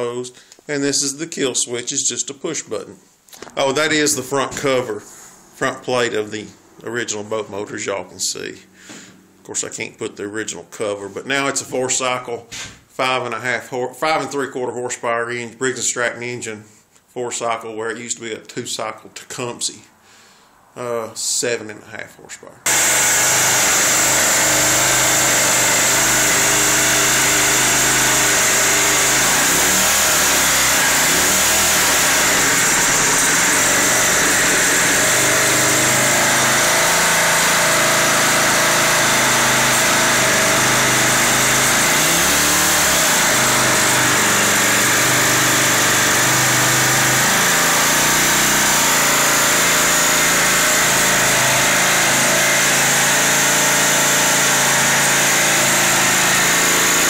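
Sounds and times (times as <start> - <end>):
outboard motor running: 22.7 - 57.0.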